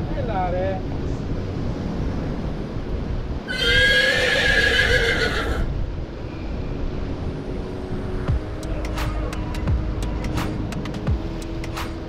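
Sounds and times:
wind on microphone: 0.0s - 12.0s.

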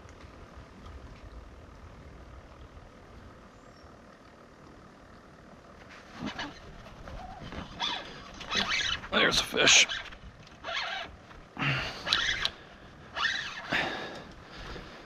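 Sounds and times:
fishing reel drag giving line: 9.7s - 11.2s, 12.0s - 13.8s.

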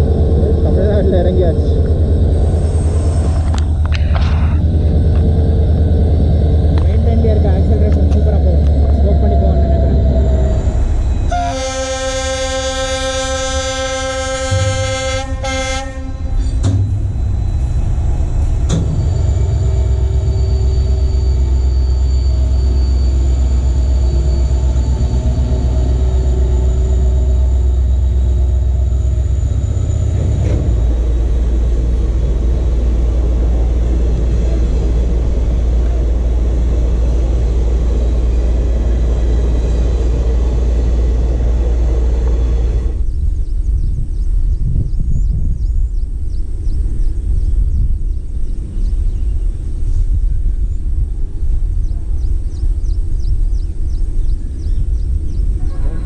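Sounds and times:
diesel locomotive engine rumble: 0.0s - 56.0s
locomotive horn: 11.3s - 16.7s
thin high whine: 16.2s - 32.0s.

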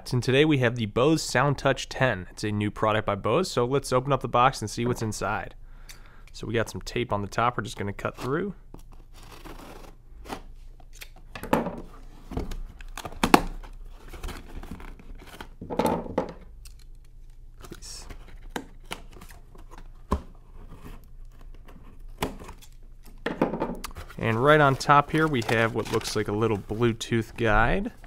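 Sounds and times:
scissors cutting packing tape: 8.8s - 11.2s
cardboard flaps rustling: 23.8s - 28.0s.

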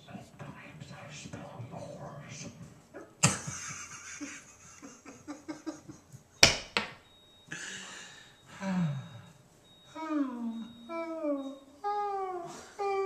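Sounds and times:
breathy hiss: 7.5s - 9.3s.

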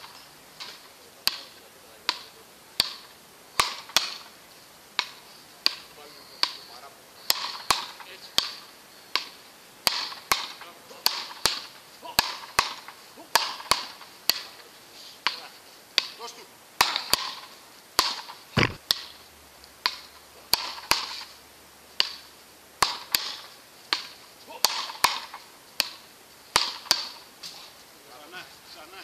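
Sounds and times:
paddle rackets hitting ball: 0.1s - 4.4s, 5.0s - 14.6s, 15.2s - 16.2s, 16.8s - 19.2s, 19.8s - 21.3s, 22.0s - 27.3s
dull thump: 18.6s - 18.8s.

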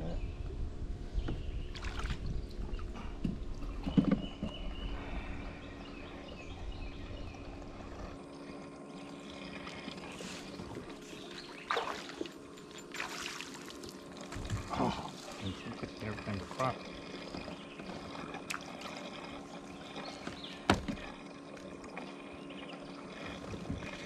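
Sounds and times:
low rumble: 0.0s - 8.2s
steady low hum: 0.0s - 24.0s.

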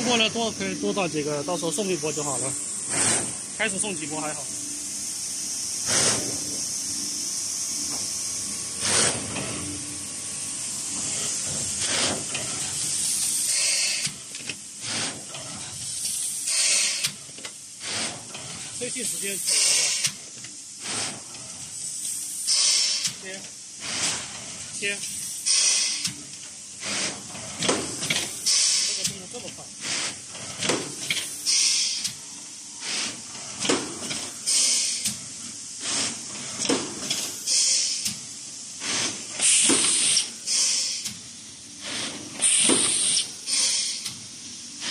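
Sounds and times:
compressed air hissing: 0.0s - 44.9s
pneumatic air blasts: 0.0s - 44.9s
short puff of air: 2.9s - 3.4s, 5.8s - 6.5s, 8.8s - 9.3s, 16.4s - 17.2s, 17.8s - 18.2s, 22.4s - 23.2s, 23.8s - 24.3s, 25.4s - 26.1s, 26.8s - 27.2s, 28.4s - 29.0s, 31.2s - 32.1s, 32.8s - 33.2s, 34.4s - 35.1s, 35.8s - 38.1s, 38.8s - 41.1s, 41.8s - 44.1s.

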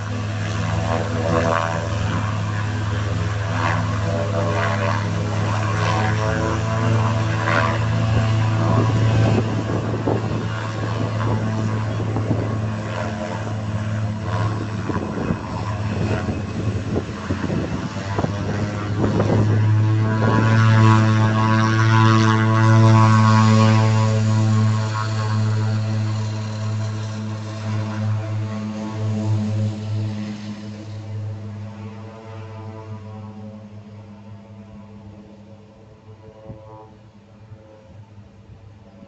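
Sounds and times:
wind buffeting microphone: 0.0s - 35.6s
turboprop engine droning: 0.0s - 39.0s.

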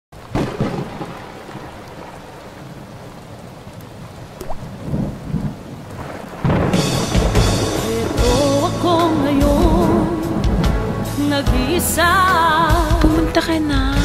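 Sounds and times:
rain falling: 0.1s - 14.0s
thunder clap: 0.2s - 2.9s, 4.4s - 11.7s
thunder rumble: 0.2s - 13.4s
music: 6.7s - 14.0s.

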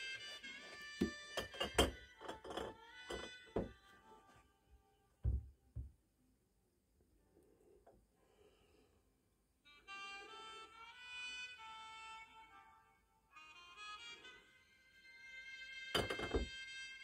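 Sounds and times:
glass bottle and metal tool clinking: 1.3s - 3.3s
dull thuds: 5.2s - 6.0s.

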